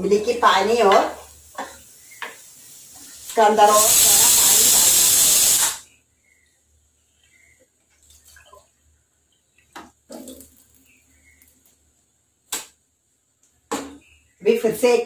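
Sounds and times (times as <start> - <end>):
running or dripping water: 0.0 - 5.8, 7.2 - 11.9.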